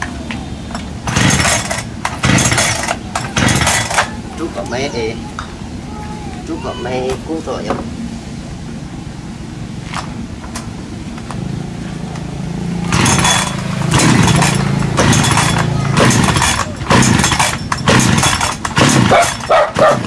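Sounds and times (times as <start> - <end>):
chainsaw cutting wood: 1.0 - 4.1, 12.9 - 20.0.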